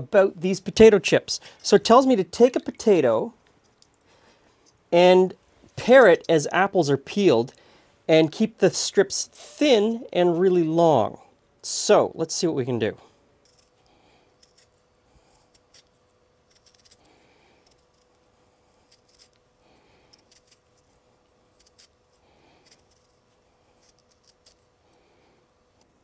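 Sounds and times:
faint steady hum: 0.0s - 26.0s
peeler scraping potato: 13.4s - 24.7s.

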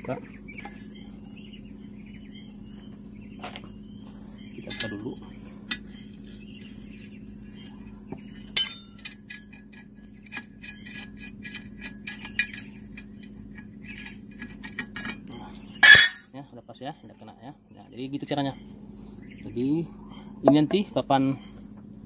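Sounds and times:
crickets chirping: 0.0s - 22.0s
loud ringing metal clink: 8.6s - 9.5s, 15.2s - 16.3s.

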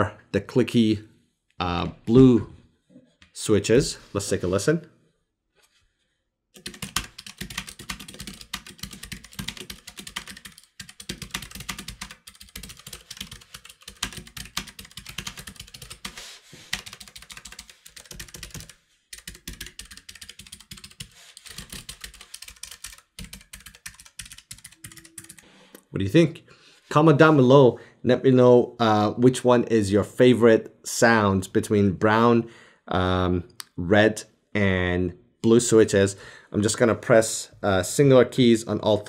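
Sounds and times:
mechanical keyboard typing clicks: 6.6s - 16.1s, 16.8s - 25.4s.

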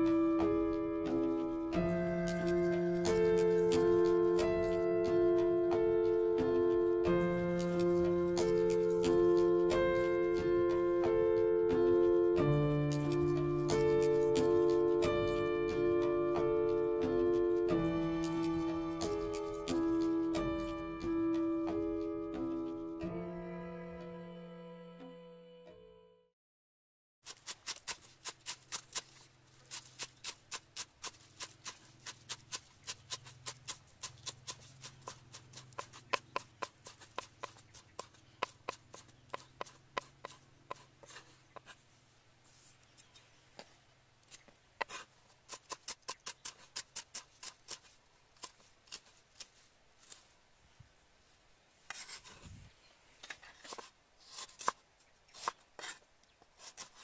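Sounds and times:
cleaver chopping on wooden block: 29.7s - 41.7s.

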